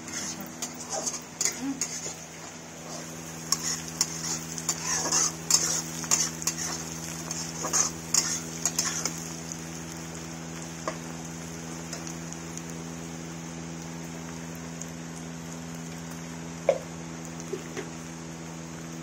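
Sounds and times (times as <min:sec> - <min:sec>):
metal spatula scraping pan: 0:00.0 - 0:02.2, 0:02.8 - 0:09.2
frying sizzle: 0:00.0 - 0:19.0
steady low hum: 0:00.0 - 0:19.0.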